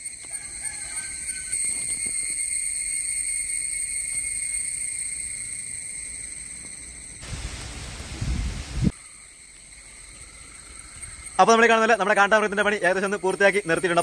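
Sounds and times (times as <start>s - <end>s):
insects shrilling: 0.0s - 14.0s
low rushing rumble on microphone: 7.2s - 8.9s.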